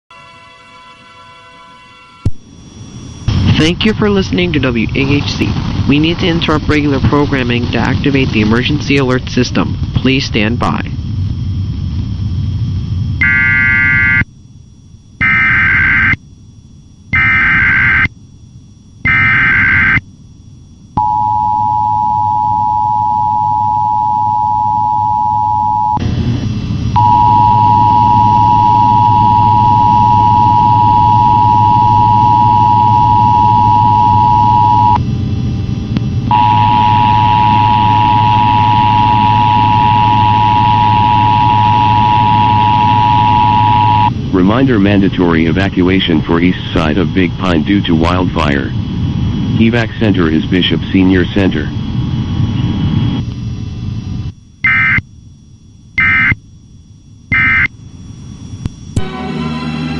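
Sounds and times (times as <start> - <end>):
low hum: 0.1 - 59.9
screeching digital data tones: 13.1 - 14.3, 15.2 - 16.3, 17.1 - 18.2, 19.0 - 20.1, 27.0 - 35.0, 36.3 - 48.8, 54.6 - 55.0, 56.0 - 56.4, 57.3 - 57.8
two-tone attention signal: 27.0 - 35.0, 36.3 - 44.1.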